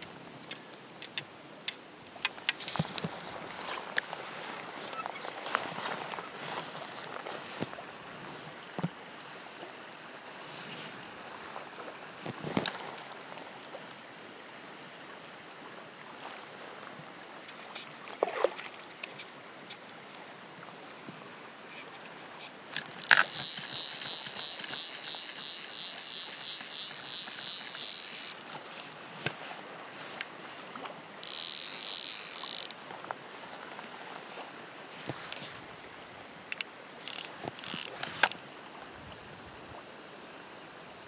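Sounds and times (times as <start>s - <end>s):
fly reel clicking buzz: 23.0s - 28.4s, 31.2s - 32.8s, 36.5s - 38.4s.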